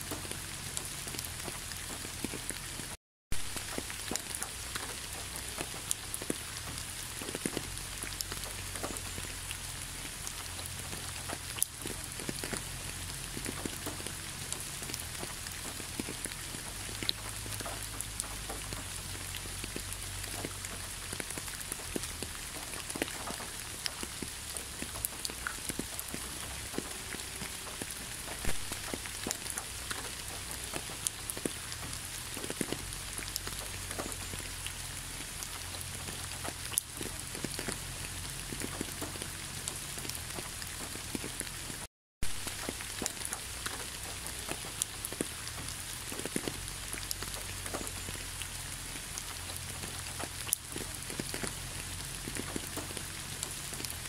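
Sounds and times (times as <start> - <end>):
rain on an asphalt road: 0.0 - 54.0
raindrops ticking close by: 0.0 - 54.0.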